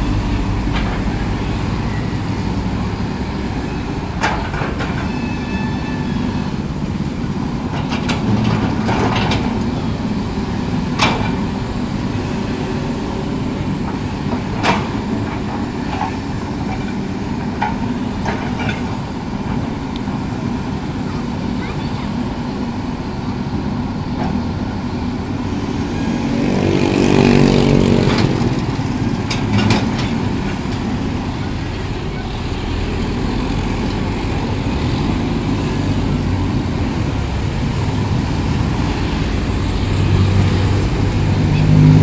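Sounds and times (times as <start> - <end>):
motorcycles passing: 0.0 - 5.5, 19.8 - 42.0
excavator diesel engine: 0.0 - 42.0.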